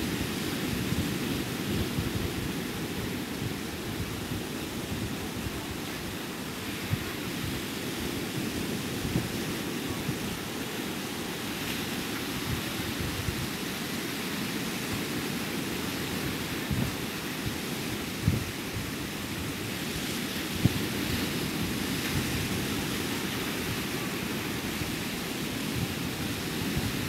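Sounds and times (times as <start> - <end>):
ocean surf breaking: 0.0 - 27.0
wind on microphone: 0.0 - 27.0.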